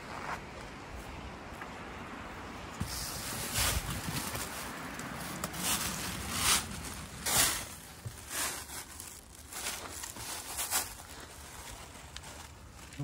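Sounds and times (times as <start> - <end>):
footsteps on earth: 0.0 - 13.0
clothing brushing: 2.8 - 12.0.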